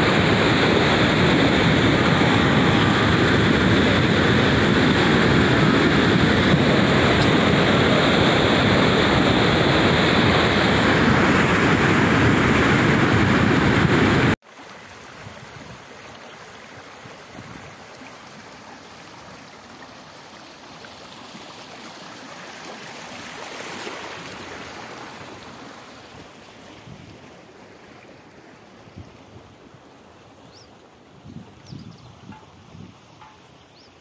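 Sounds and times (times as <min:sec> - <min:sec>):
rainwater rushing over ground: 0:00.0 - 0:16.0.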